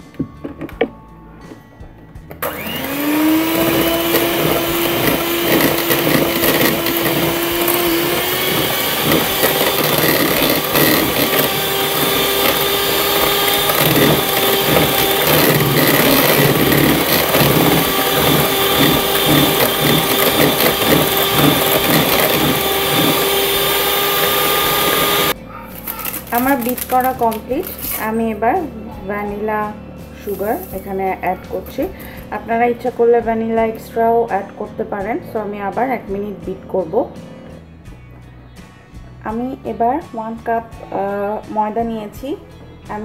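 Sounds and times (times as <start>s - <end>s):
electric hand mixer whirring: 2.4s - 28.1s.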